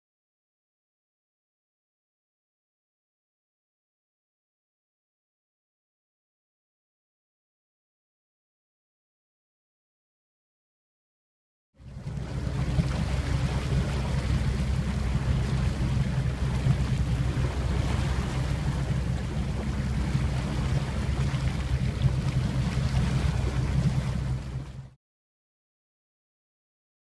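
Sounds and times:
motorboat engine running: 0:11.8 - 0:25.0
wake water rushing: 0:11.8 - 0:25.0
wind on microphone: 0:11.9 - 0:24.9.

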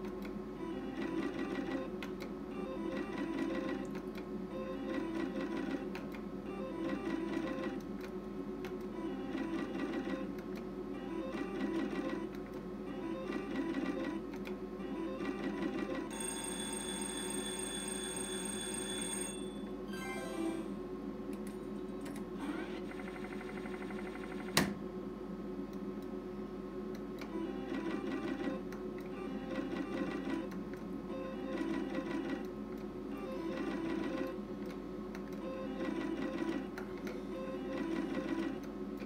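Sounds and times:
slot machine reels spinning: 0:14.9 - 0:20.8, 0:33.3 - 0:34.4, 0:37.5 - 0:38.6
electronic win chime: 0:16.1 - 0:20.8.

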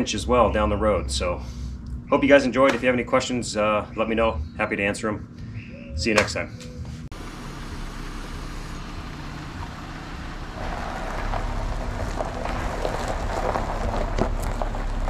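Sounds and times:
low engine hum: 0:00.0 - 0:15.0
tyres crunching over gravel: 0:07.1 - 0:15.0.

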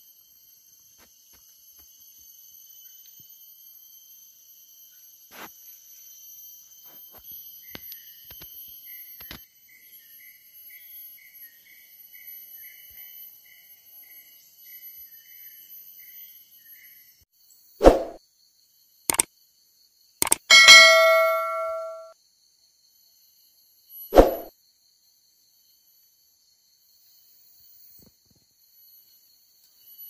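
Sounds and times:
high-pitched insect drones: 0:00.0 - 0:09.4
sharp clicks: 0:20.2 - 0:21.9.

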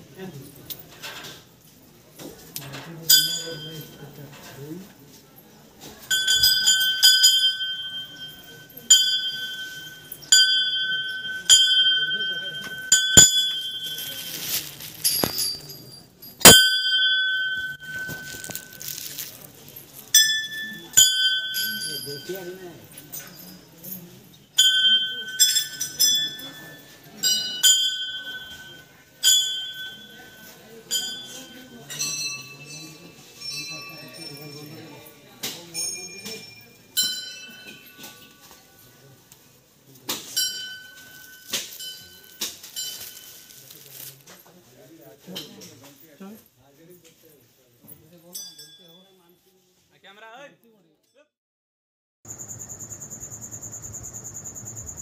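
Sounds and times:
small metal bell ringing: 0:03.1 - 0:04.3, 0:06.0 - 0:39.0, 0:40.3 - 0:44.2, 0:48.2 - 0:49.4
temple bells ringing: 0:06.1 - 0:14.6, 0:16.5 - 0:19.2.

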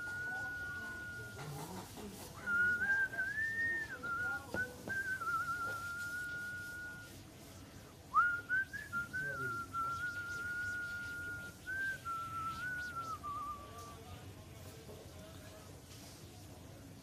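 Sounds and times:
person whistling a tune: 0:00.0 - 0:01.5, 0:02.4 - 0:07.2, 0:08.1 - 0:13.9.

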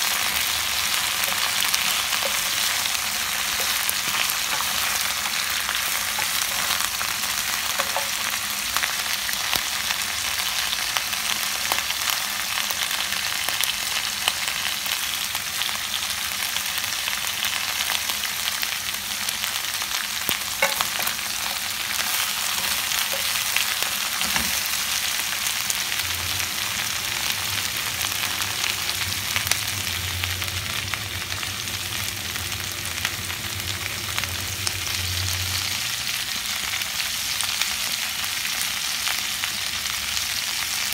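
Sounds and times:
vegetables sizzling in oil: 0:00.0 - 0:40.9
wooden spatula tapping and scraping: 0:01.1 - 0:06.9, 0:07.6 - 0:08.3, 0:20.6 - 0:24.8.

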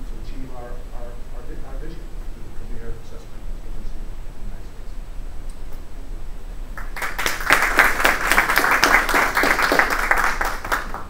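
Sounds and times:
people clapping: 0:06.8 - 0:11.0.

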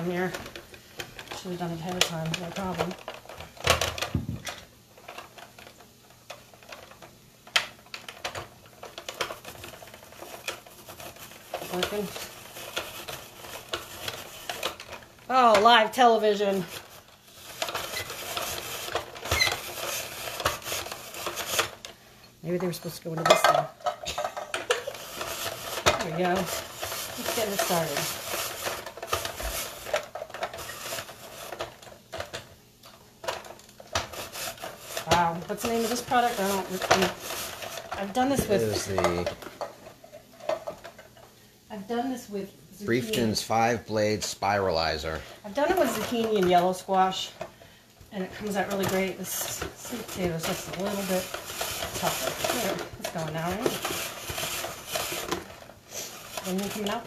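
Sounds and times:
plastic spiralizer clicks and knocks: 0:00.0 - 0:16.9
spiralizer crank clicking and scraping: 0:07.9 - 0:21.9, 0:24.6 - 0:31.7, 0:48.4 - 0:57.0.

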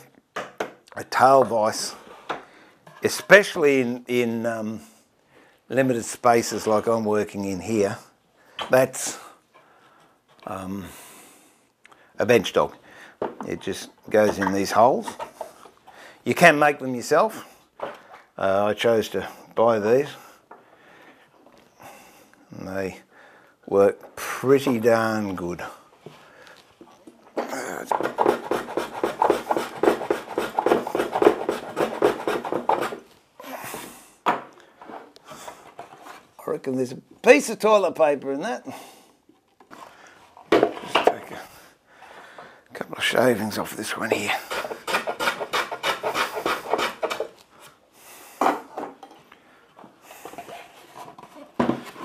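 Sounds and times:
hand tool scraping wood: 0:27.4 - 0:33.1, 0:43.9 - 0:47.7, 0:50.1 - 0:52.0
handling wooden stool: 0:49.8 - 0:52.0.

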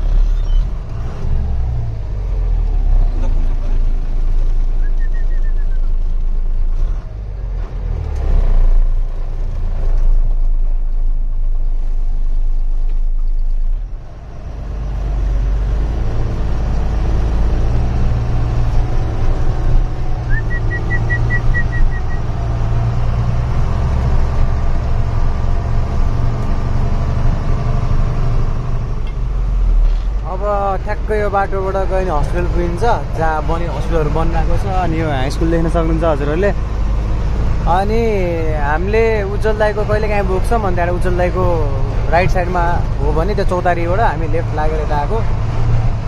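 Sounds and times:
truck diesel engine running: 0:00.0 - 0:46.0.

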